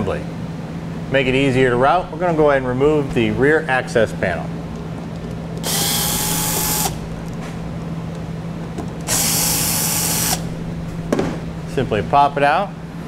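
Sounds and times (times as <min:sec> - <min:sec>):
cordless drill running: 0:05.6 - 0:07.4, 0:09.1 - 0:10.6.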